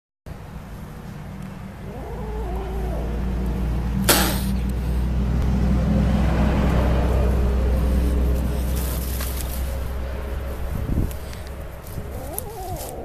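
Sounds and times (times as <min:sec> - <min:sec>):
steady low rumble: 0:00.3 - 0:12.9
kitten hissing: 0:04.0 - 0:05.1.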